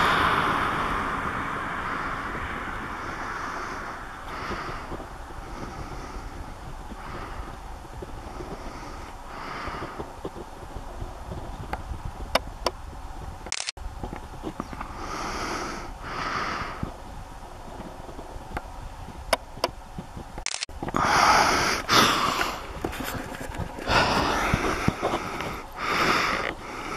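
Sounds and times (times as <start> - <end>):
wind rumbling on microphone: 0.0 - 26.9
person breathing and sniffing: 3.0 - 10.4, 14.8 - 17.0, 20.5 - 26.9.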